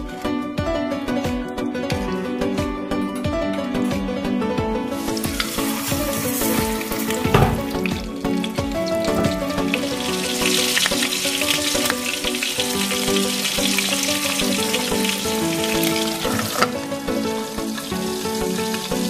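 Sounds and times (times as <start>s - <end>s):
background music with held notes: 0.0s - 19.0s
chicken sizzling in hot oil: 4.9s - 19.0s
glass lid knocking on pan: 7.2s - 7.8s, 9.1s - 9.5s.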